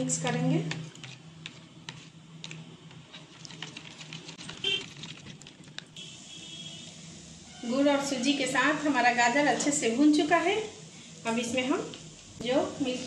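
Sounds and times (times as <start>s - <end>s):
spoon stirring in a bowl: 0.1s - 5.8s
faint steady hum: 5.6s - 13.0s.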